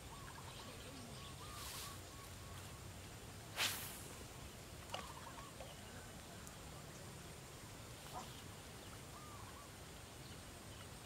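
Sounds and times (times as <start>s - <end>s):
faint short bird calls: 0.0s - 2.8s, 4.9s - 6.2s, 8.0s - 9.8s.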